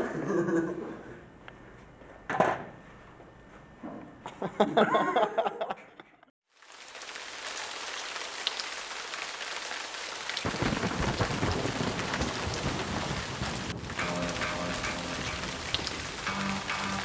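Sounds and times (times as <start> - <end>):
steady rain: 6.5 - 17.0
low thunder rumble: 10.4 - 16.3.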